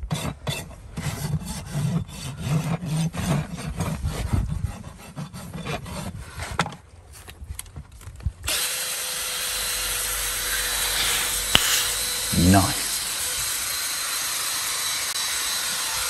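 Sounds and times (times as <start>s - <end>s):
rasp filing hoof: 0.0s - 6.8s, 9.4s - 16.0s
steady hiss: 10.2s - 13.9s.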